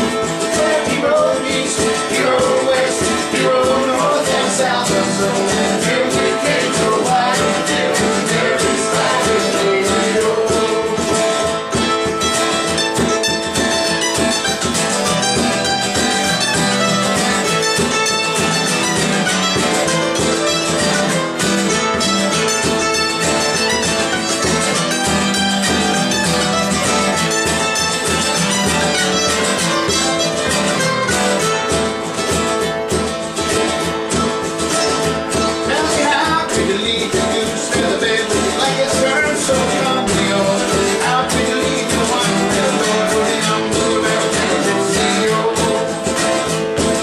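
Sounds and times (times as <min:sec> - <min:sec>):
frame drum: 0:00.0 - 0:47.0
strummed acoustic guitar: 0:00.0 - 0:47.0
fiddle: 0:04.5 - 0:36.9.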